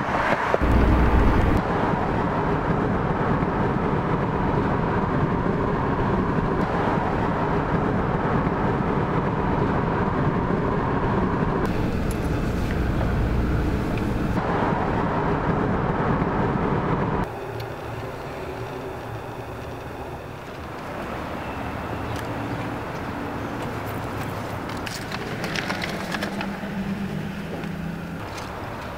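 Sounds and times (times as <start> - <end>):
road and wind noise in cabin: 0.0 - 28.9.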